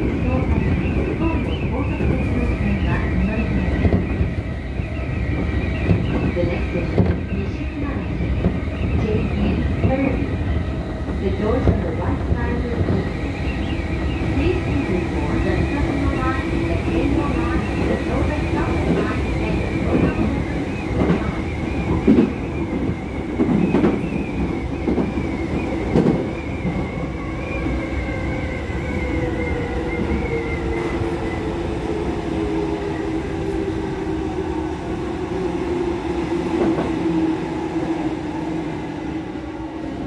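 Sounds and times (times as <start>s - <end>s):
train wheels clacking: 13.6s - 27.0s.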